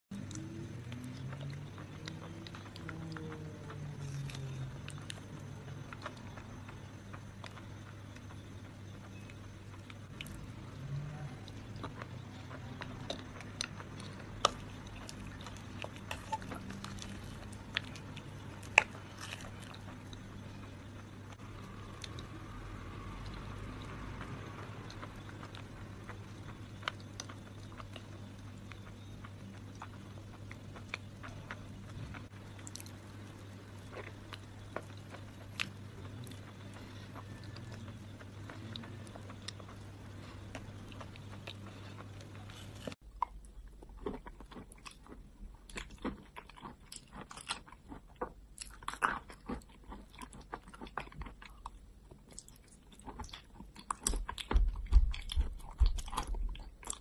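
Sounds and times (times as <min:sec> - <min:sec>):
faint low hum: 0:00.1 - 0:57.0
wet chewing and lip smacking: 0:11.4 - 0:57.0.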